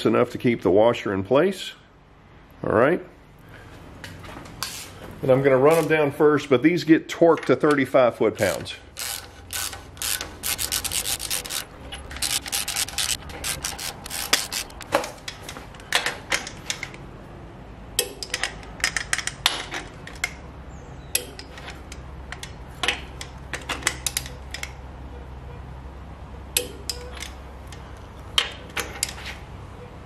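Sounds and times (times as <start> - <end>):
hand ratchet clicking: 8.9 - 15.0.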